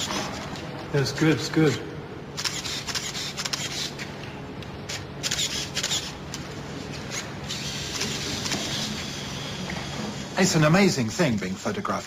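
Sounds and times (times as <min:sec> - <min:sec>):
camera shutter clicks: 0:02.4 - 0:03.9, 0:04.9 - 0:06.1.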